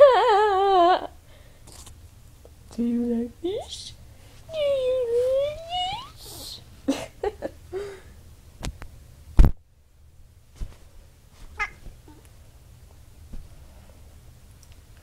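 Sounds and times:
cat crying: 0:11.6 - 0:12.2.

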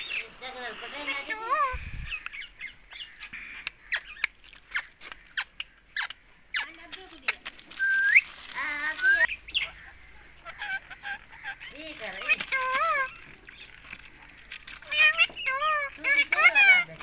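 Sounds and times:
parakeet chirping and whistling: 0:07.8 - 0:08.3.

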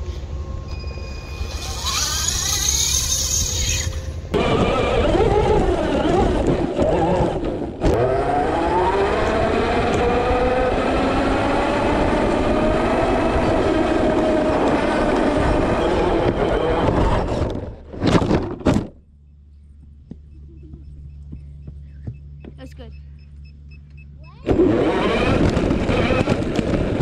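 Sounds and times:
electric motor whining: 0:01.4 - 0:17.6, 0:24.4 - 0:27.0.

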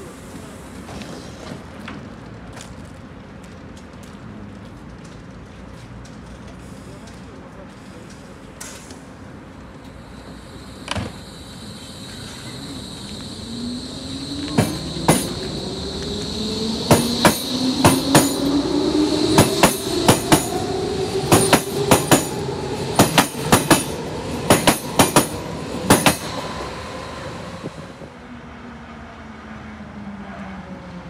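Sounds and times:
electric train motors whining: 0:09.7 - 0:28.1.

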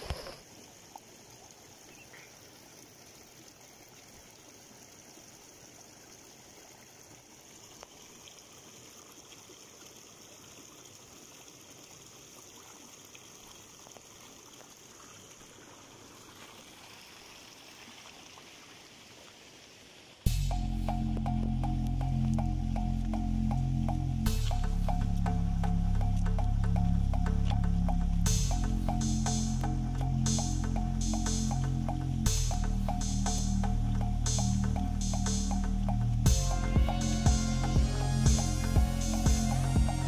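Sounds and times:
stream running over stones: 0:00.0 - 0:40.0.

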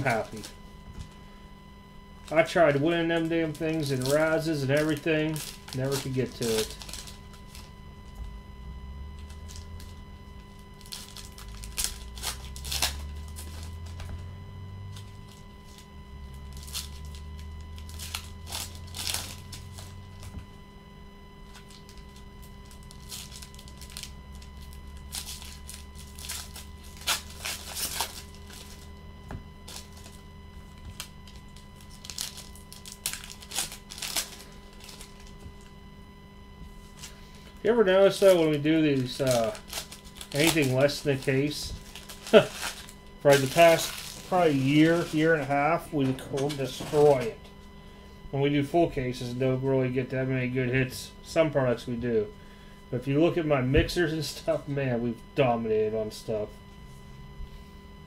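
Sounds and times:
foil wrappers crinkling: 0:00.0 - 0:01.4, 0:02.2 - 0:08.2, 0:09.1 - 0:20.4, 0:21.4 - 0:35.7, 0:36.6 - 0:47.7
faint hum: 0:00.0 - 0:58.0
trading cards rustling and sliding: 0:02.3 - 0:07.7, 0:16.5 - 0:20.3, 0:21.5 - 0:28.9, 0:30.9 - 0:35.4, 0:36.8 - 0:47.3.

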